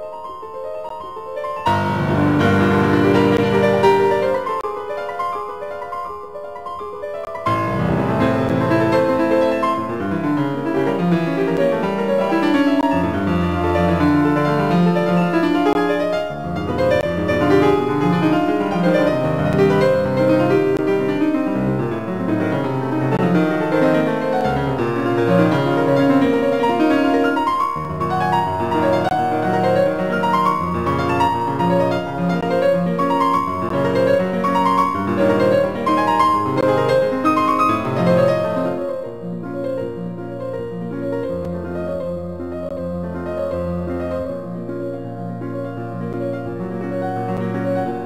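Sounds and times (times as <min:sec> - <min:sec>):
piano piece with quick notes: 0:00.0 - 0:48.0.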